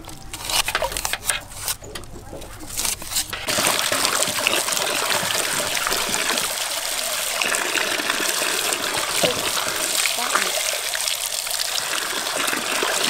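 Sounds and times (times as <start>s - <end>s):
water splashing and sloshing: 0.0s - 13.0s
water pouring into metal basin: 3.4s - 13.0s.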